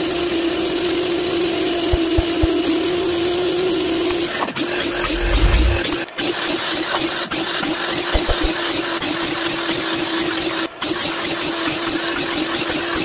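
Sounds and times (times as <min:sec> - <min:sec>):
miter saw cutting wood: 0:00.5 - 0:03.5, 0:04.2 - 0:06.0.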